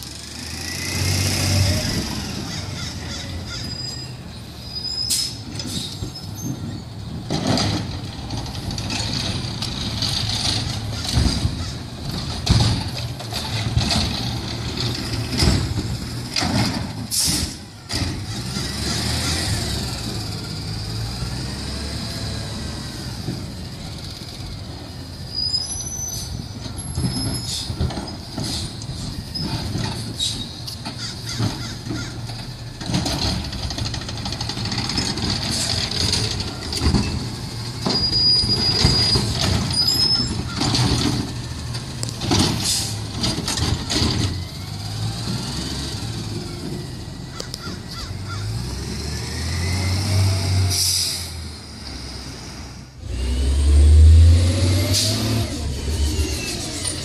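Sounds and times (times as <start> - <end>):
truck engine revving: 0.0 - 3.2, 7.2 - 57.0
garbage truck clanks and knocks: 5.4 - 20.2, 26.4 - 48.8
air brake hiss: 17.1 - 17.6, 50.7 - 51.4.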